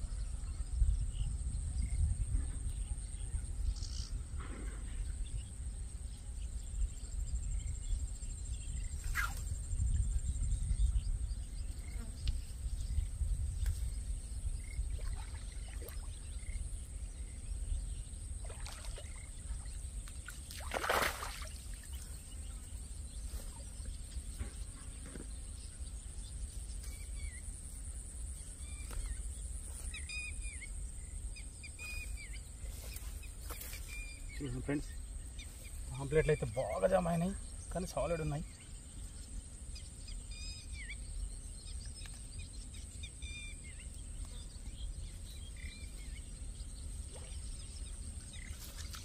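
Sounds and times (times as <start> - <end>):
wind rumble on microphone: 0.0 - 21.0
fish splashing in water: 18.4 - 19.6, 20.4 - 21.9.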